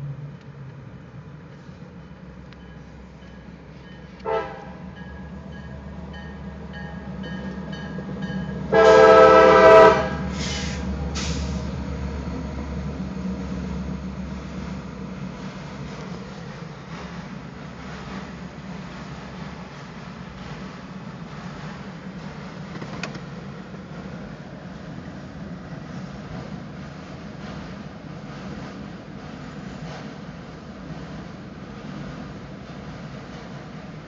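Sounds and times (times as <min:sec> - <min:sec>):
train rumbling: 0:00.0 - 0:34.0
railroad crossing bell: 0:01.5 - 0:10.4
locomotive air horn: 0:04.2 - 0:04.8, 0:08.7 - 0:11.6.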